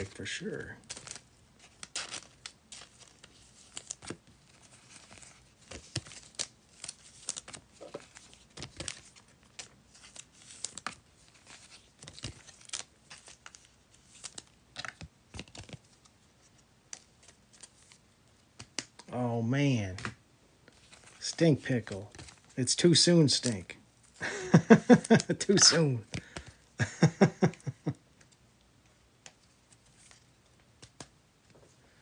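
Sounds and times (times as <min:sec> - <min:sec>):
wrappers tearing and crinkling: 0:00.0 - 0:16.0
cards clicking and rustling: 0:00.0 - 0:19.1, 0:19.8 - 0:28.5, 0:29.2 - 0:31.7.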